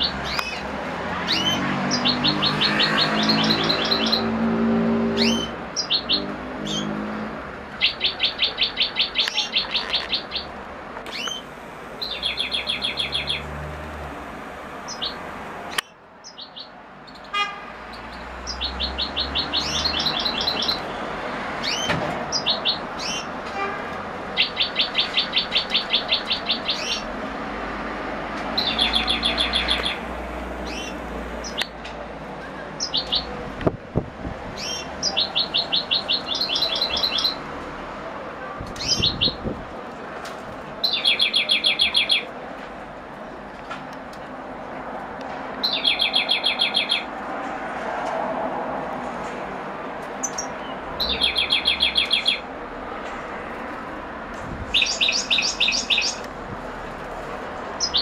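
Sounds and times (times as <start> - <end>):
goldfinch singing trilled phrases: 11.1 - 13.5.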